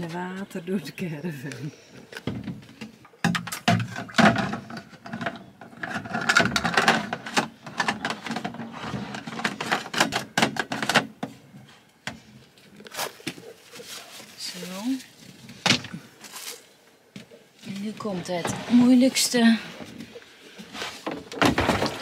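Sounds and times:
plastic jerry can clattering: 2.2 - 11.4, 20.8 - 22.0.

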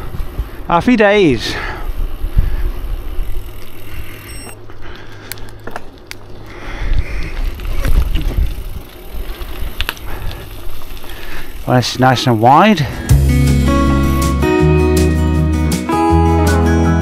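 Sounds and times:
bike clicks and rattles: 0.0 - 13.1
bike tyre rumble on dirt: 0.0 - 14.2.

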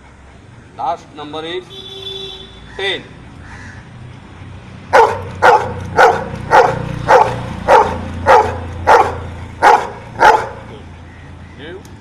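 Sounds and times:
dog barking: 4.9 - 10.7.

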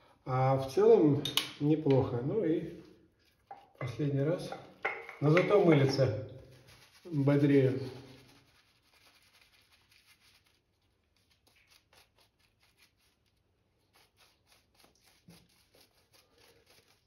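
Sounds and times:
shaving brush scratching stubble: 5.2 - 17.0.

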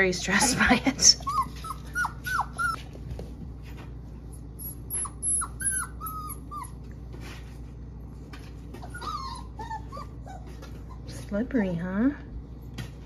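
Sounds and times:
puppies whimpering: 1.0 - 2.8, 4.4 - 7.0, 8.7 - 11.2.

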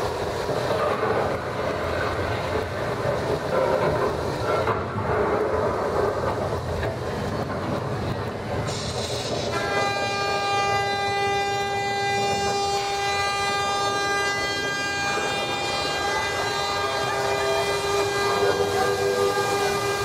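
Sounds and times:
constant rushing noise: 0.0 - 20.0
long horn blast: 9.4 - 20.0.

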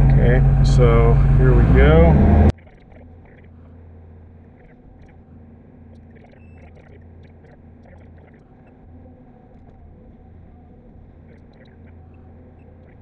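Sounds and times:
excavator diesel engine running: 0.0 - 2.5.

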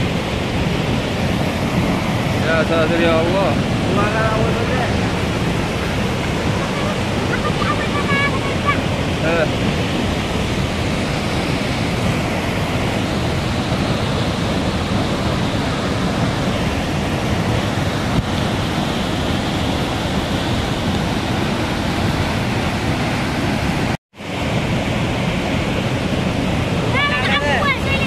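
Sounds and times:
water rushing over waterfall: 0.0 - 28.0.

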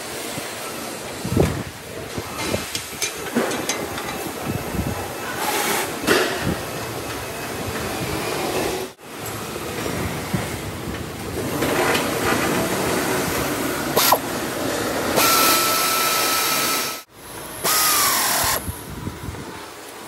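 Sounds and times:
metalworking machines and power tools: 0.0 - 20.0
tool spinning down: 17.6 - 18.6.

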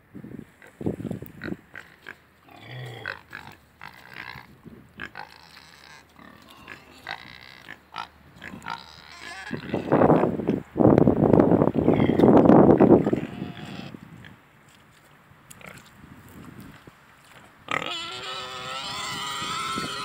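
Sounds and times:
pig grunting: 1.4 - 10.4, 11.8 - 12.3, 13.0 - 14.0, 17.7 - 20.0.

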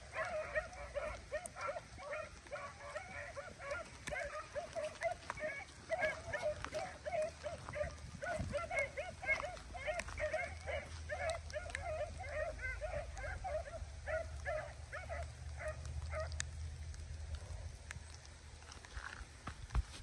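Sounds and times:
dogs barking: 0.0 - 16.6.

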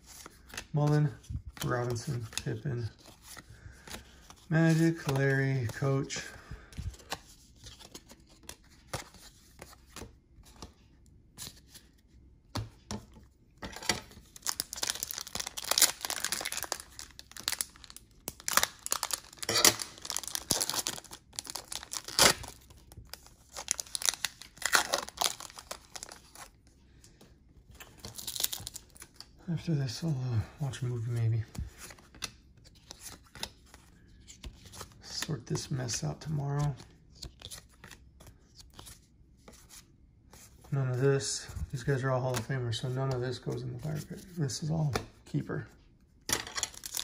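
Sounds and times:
wrapper tearing and crinkling: 14.4 - 22.6, 23.5 - 26.4, 46.4 - 47.0.

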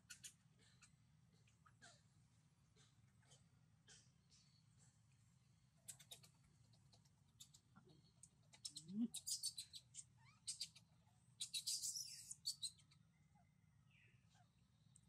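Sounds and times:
high-pitched animal chirps: 8.6 - 10.8, 11.4 - 12.9.

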